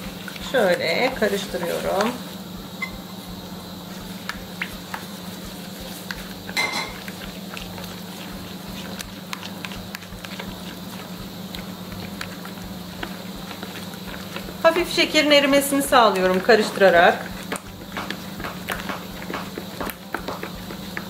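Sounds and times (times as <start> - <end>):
steady low hum: 0.0 - 21.0
wet clicks of stirring: 4.2 - 21.0.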